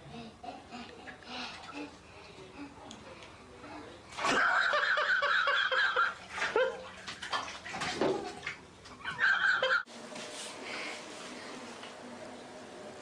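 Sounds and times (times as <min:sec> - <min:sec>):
bathwater splashing: 0:04.1 - 0:09.6.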